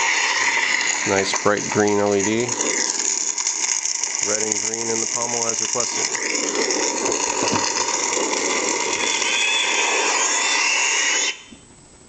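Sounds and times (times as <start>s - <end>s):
lightsaber hum: 0.0s - 11.5s.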